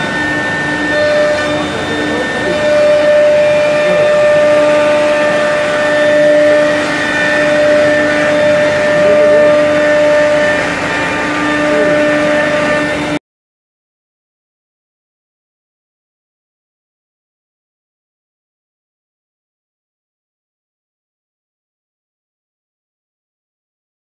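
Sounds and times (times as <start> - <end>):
router spindle whining: 0.0 - 13.2.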